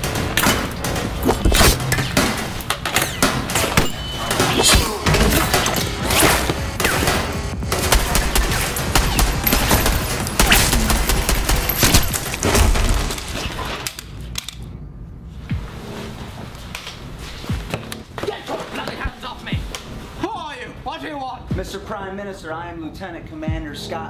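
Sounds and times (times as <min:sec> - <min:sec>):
rifles firing in volleys: 0:00.0 - 0:13.5.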